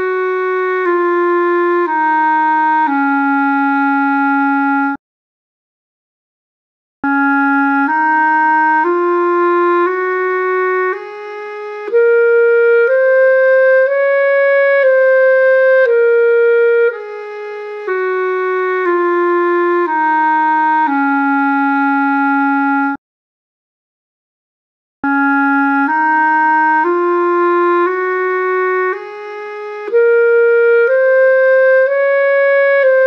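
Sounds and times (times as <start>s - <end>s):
clarinet playing a scale: 0.0s - 5.0s, 7.0s - 23.0s, 25.0s - 33.0s.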